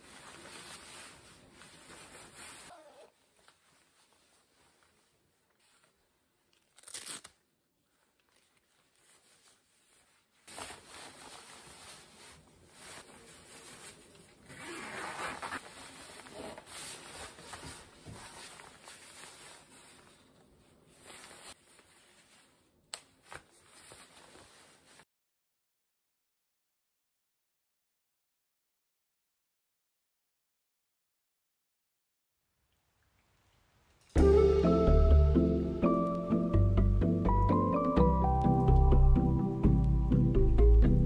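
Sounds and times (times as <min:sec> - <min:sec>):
synthetic fabric rustling: 0:00.0 - 0:25.1.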